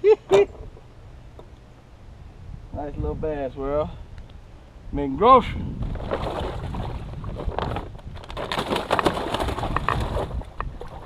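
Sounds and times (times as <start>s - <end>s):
wind buffeting microphone: 2.1s - 11.0s
handling rustles and knocks: 5.8s - 11.0s.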